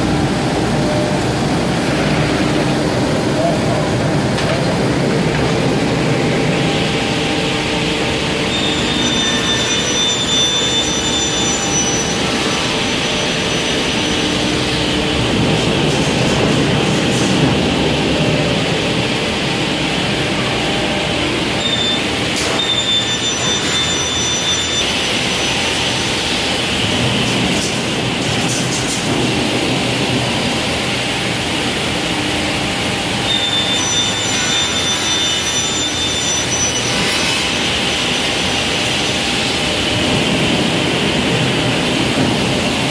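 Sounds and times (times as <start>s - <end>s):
high-pitched saw whine: 5.7s - 17.2s, 18.1s - 28.3s, 32.6s - 40.1s.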